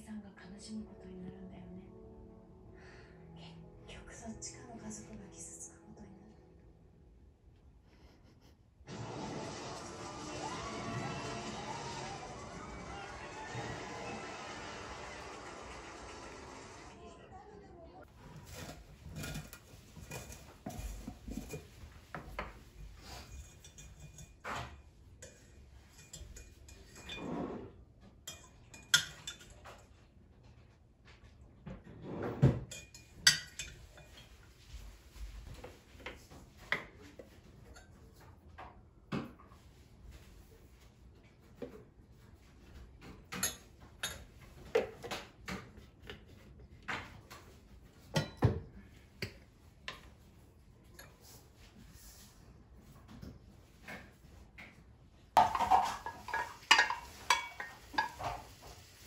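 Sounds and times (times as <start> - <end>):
rustling scrapes: 18.1 - 24.4, 55.4 - 59.0
glass jars clinking: 18.4 - 24.5, 25.2 - 27.4, 28.3 - 29.6, 32.7 - 34.2, 55.4 - 58.4
small glass bowl clinking: 32.7 - 34.2, 55.4 - 58.4.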